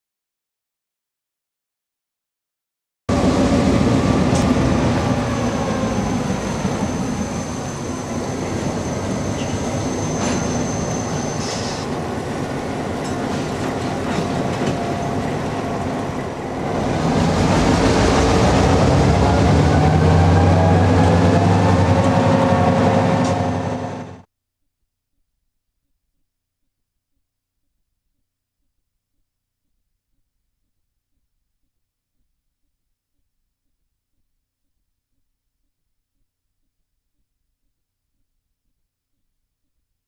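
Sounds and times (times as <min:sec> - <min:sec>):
diesel locomotive engine running: 0:03.1 - 0:24.3
thin high squeal: 0:06.8 - 0:11.9.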